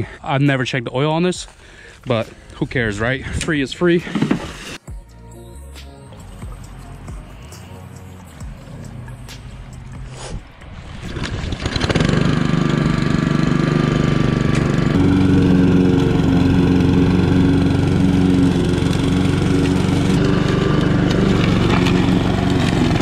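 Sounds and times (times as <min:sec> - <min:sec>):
lawn mower engine running: 0:11.2 - 0:23.0.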